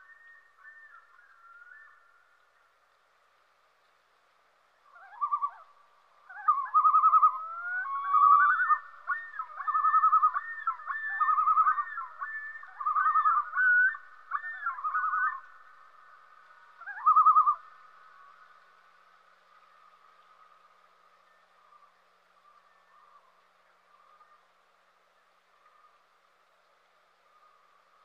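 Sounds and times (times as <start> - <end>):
loon wailing calls: 4.8 - 16.2, 16.8 - 18.6
loon tremolo calls: 4.9 - 5.7, 6.3 - 16.2, 16.8 - 18.6.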